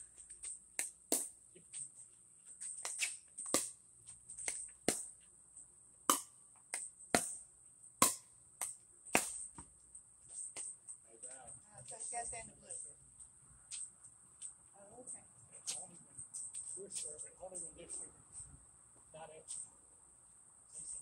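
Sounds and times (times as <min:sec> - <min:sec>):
high-pitched hiss: 0:00.0 - 0:05.0, 0:20.7 - 0:21.0
paddles striking plastic ball: 0:06.1 - 0:07.4, 0:08.0 - 0:09.7
ball bouncing on court: 0:08.0 - 0:09.7.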